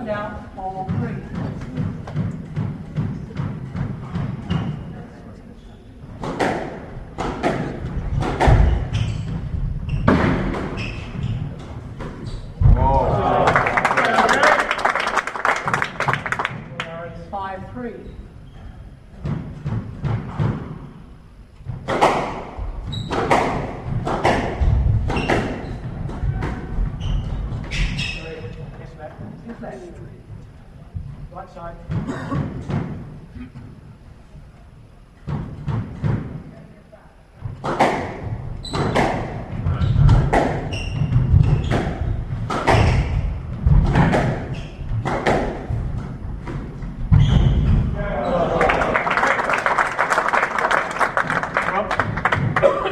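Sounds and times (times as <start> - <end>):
shoes squeaking on court: 4.3 - 5.0, 8.6 - 12.6, 22.9 - 23.4, 25.1 - 28.7, 39.7 - 43.3, 47.1 - 47.8
squash ball cracking: 6.2 - 10.8, 21.6 - 26.8, 37.6 - 48.0.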